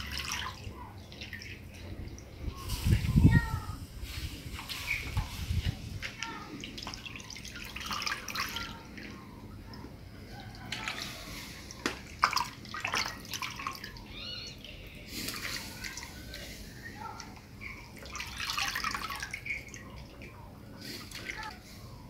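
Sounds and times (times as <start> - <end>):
water dripping and splashing: 0.0 - 3.1, 4.5 - 16.4, 17.0 - 21.6.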